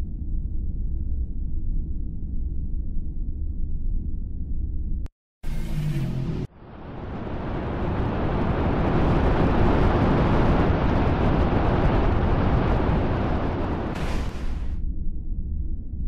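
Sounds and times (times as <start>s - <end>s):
spacecraft engine rumble: 5.5s - 14.8s.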